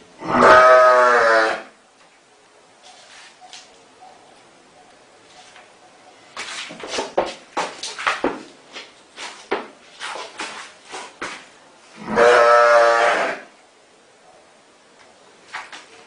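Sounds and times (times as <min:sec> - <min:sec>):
sheep bleating: 0:00.2 - 0:01.7, 0:12.0 - 0:13.5
knocks and scuffs: 0:06.4 - 0:11.5.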